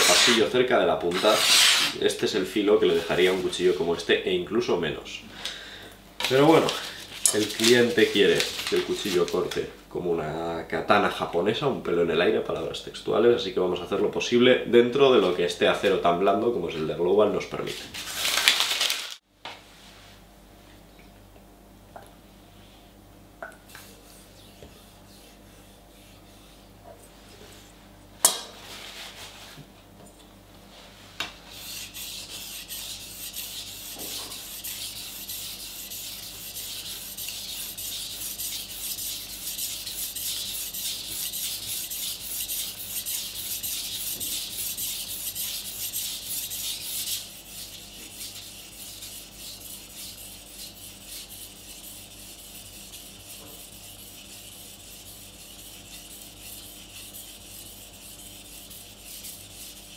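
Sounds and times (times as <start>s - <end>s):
knife scraping on whetstone: 0.0s - 0.5s, 1.1s - 2.0s, 31.5s - 59.9s.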